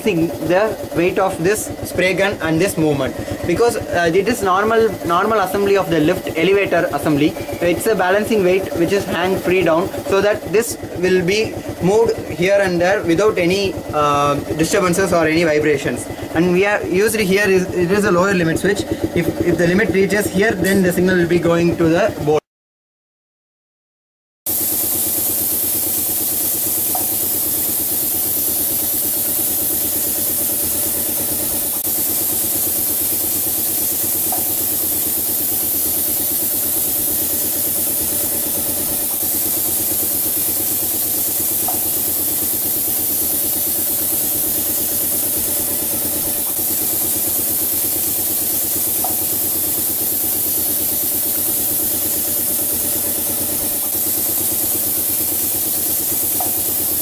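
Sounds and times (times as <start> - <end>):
painting machine humming and hissing: 0.0 - 22.4, 24.5 - 57.0.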